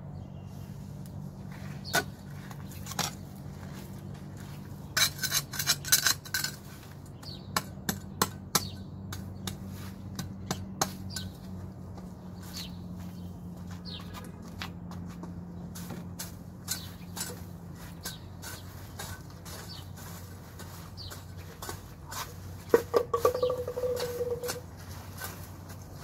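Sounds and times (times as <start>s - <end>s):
blade cutting grass: 15.6s - 26.0s.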